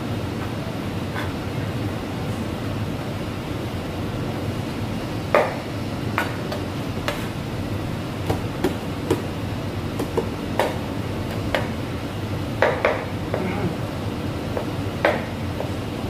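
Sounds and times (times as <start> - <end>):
kitchen background rush: 0.0 - 16.0
kitchen knocks and clacks: 10.0 - 11.8.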